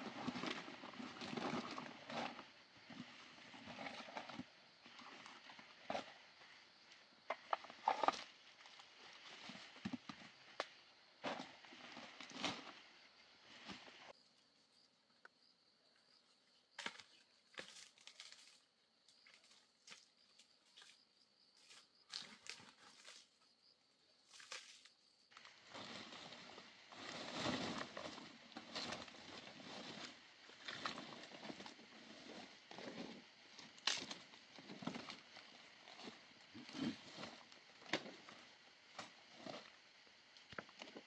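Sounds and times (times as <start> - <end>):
rustling of leaves: 24.2 - 41.0.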